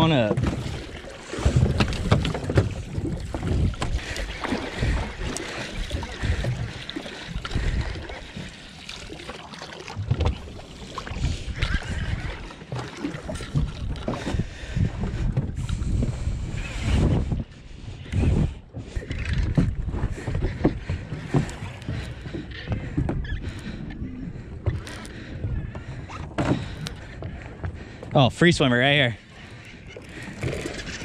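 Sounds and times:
wind buffeting microphone: 1.4s - 8.1s, 13.2s - 28.0s
fishing gear clicks and knocks: 24.6s - 25.1s.

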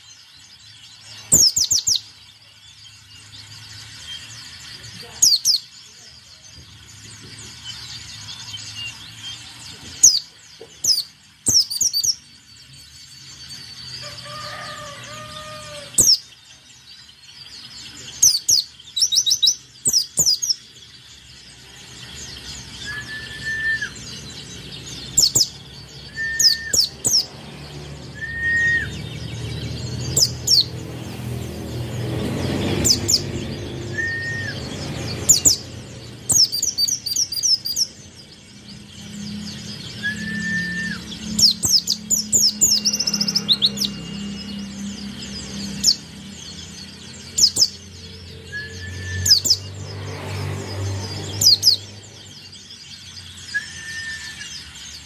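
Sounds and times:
bird singing high chirps: 0.0s - 55.0s.

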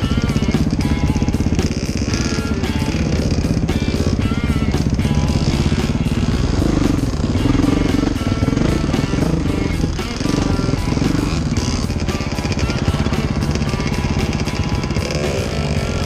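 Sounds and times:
dirt bike engine running: 0.0s - 16.0s
music playing: 0.0s - 16.0s.

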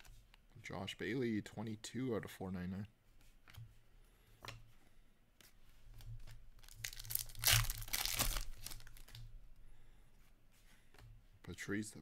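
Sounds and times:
foil wrapper tearing: 6.6s - 9.2s.

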